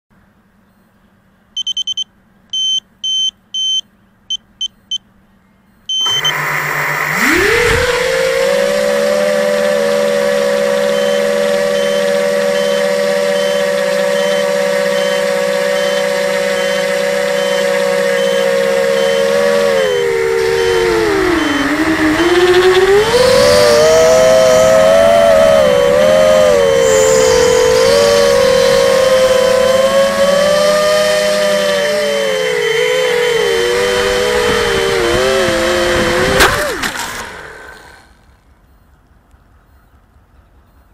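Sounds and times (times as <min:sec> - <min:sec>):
faint warning beep: 0:01.6 - 0:05.1, 0:05.7 - 0:06.4, 0:10.8 - 0:19.3, 0:20.4 - 0:25.4
drone motors whining: 0:05.9 - 0:38.5.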